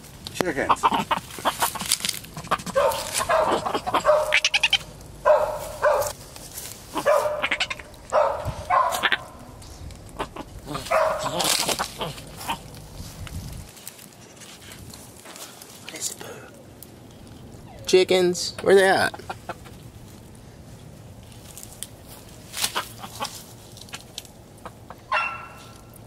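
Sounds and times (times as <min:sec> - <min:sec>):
short animal calls: 0:02.4 - 0:04.9, 0:06.9 - 0:07.9.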